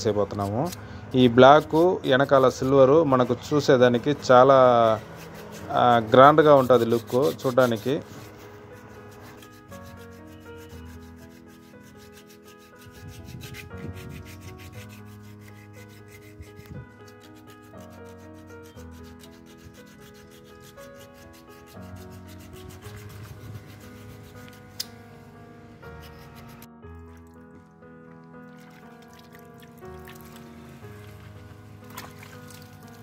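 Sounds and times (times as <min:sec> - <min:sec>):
soft background music: 0:00.0 - 0:33.0
sandpaper rubbing on handle: 0:00.1 - 0:03.3, 0:04.5 - 0:24.9.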